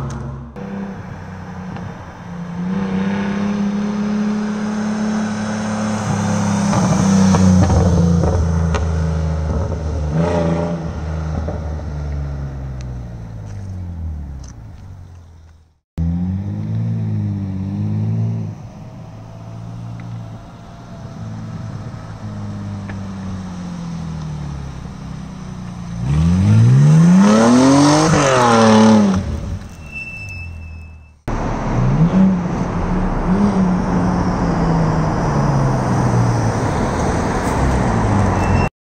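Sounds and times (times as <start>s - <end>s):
car accelerating past: 0.0s - 14.4s, 16.0s - 29.7s
car engine revving: 0.0s - 15.4s, 16.0s - 29.8s, 31.2s - 38.6s.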